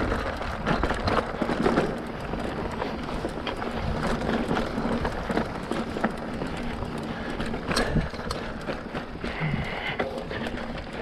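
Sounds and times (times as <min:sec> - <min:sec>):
bike knocks and rattles: 0:00.0 - 0:11.0
bike tyres on dirt: 0:00.0 - 0:11.0.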